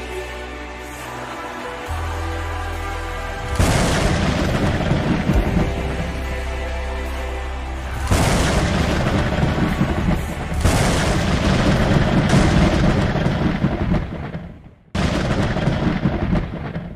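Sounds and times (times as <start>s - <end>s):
soft background music: 0.0s - 13.1s
thunder rumbling crash: 3.6s - 6.1s, 8.1s - 16.9s.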